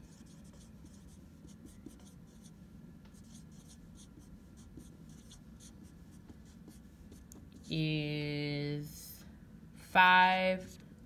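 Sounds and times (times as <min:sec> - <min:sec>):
marker squeaking on whiteboard: 0:00.0 - 0:02.5, 0:03.2 - 0:07.3.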